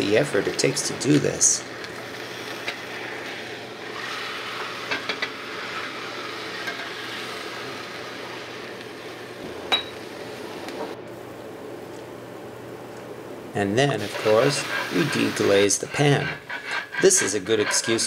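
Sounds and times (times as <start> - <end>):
meat sizzling in a skillet: 1.4 - 9.4.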